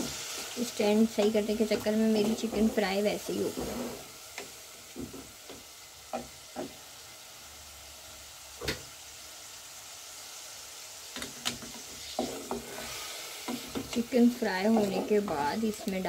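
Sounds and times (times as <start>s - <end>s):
chicken frying in oil: 0.0s - 16.0s
wooden spatula knocking pot: 13.5s - 16.0s.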